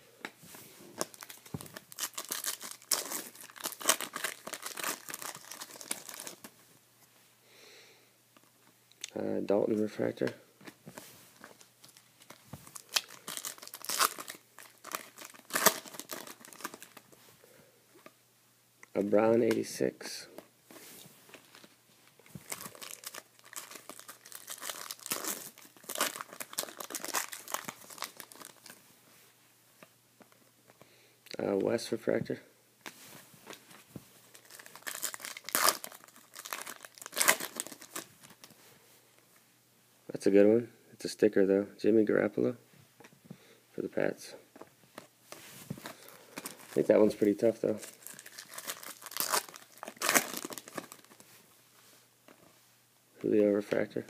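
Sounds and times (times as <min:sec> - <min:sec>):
foil wrapper crinkling: 0:01.0 - 0:06.5, 0:11.6 - 0:17.1, 0:22.4 - 0:28.8, 0:34.3 - 0:38.5, 0:45.8 - 0:51.2.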